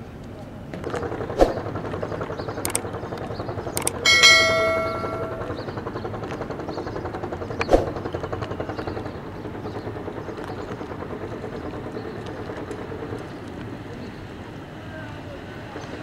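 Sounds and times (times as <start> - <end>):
boat diesel engine throbbing: 3.8 - 5.8
sharp metallic clang: 3.9 - 5.6.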